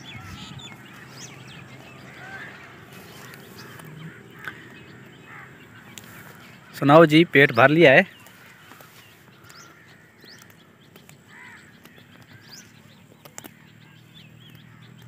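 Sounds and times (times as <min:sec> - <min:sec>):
crow calling: 0:00.0 - 0:15.0
small birds chirping: 0:00.0 - 0:15.0
sharp clicks: 0:08.1 - 0:13.6.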